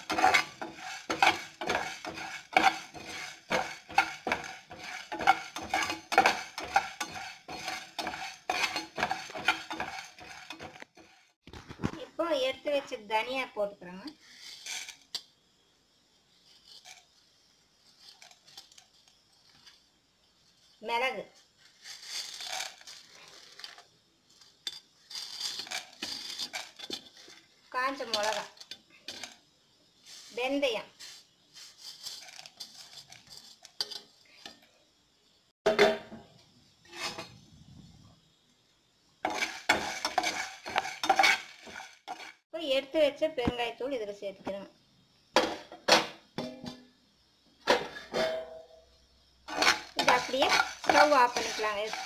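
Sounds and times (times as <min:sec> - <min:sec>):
seeds rattling into pan: 0:00.0 - 0:11.9, 0:16.4 - 0:29.4, 0:30.0 - 0:34.4, 0:39.2 - 0:42.4, 0:49.4 - 0:52.0.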